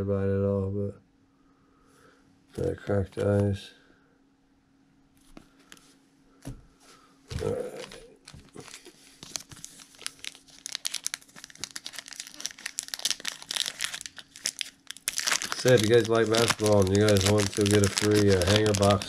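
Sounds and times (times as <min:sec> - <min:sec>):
foil wrapper crinkling: 0:07.4 - 0:19.0.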